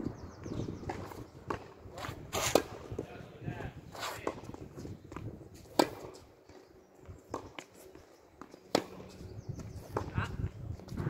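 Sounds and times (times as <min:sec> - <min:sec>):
racket hitting tennis ball: 0:00.9 - 0:03.0, 0:05.6 - 0:06.2, 0:08.7 - 0:09.2.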